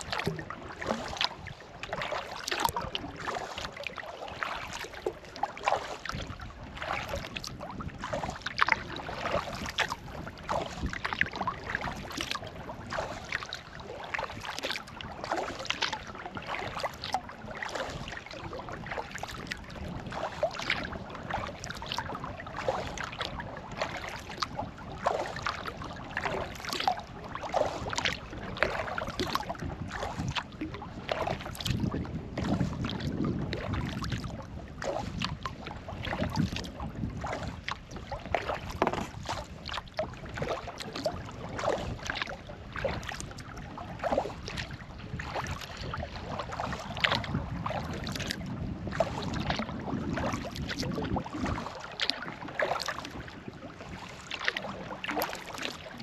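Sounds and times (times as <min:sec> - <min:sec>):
water dripping off paddle: 0:00.0 - 0:03.6, 0:08.5 - 0:09.9
paddle dipping into water: 0:00.0 - 0:56.0
water splashing: 0:00.0 - 0:56.0.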